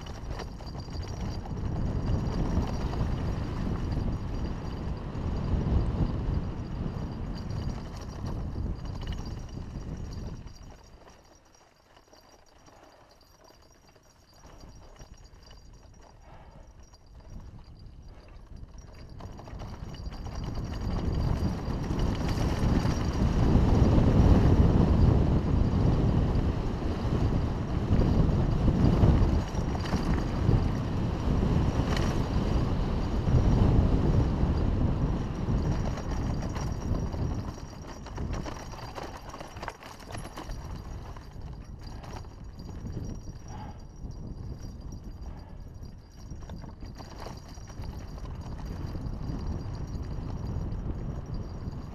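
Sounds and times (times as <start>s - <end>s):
wind rushing over microphone: 0.0s - 11.0s, 16.2s - 51.9s
mountain bike rattling on dirt: 0.0s - 51.9s.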